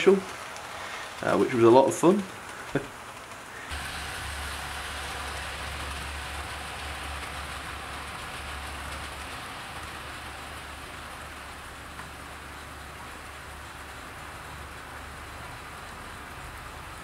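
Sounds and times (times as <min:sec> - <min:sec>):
model train wheels rattling: 0:00.0 - 0:17.0
low motor hum: 0:03.7 - 0:17.0.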